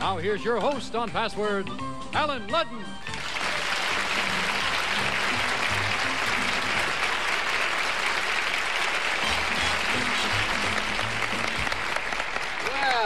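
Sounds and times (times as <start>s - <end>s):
background music: 0.0s - 13.0s
audience applauding: 3.1s - 13.0s.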